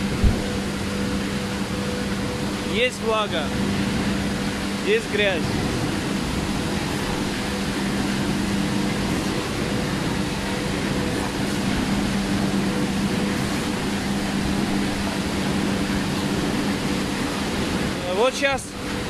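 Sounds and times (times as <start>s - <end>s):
machinery humming: 0.0s - 19.0s.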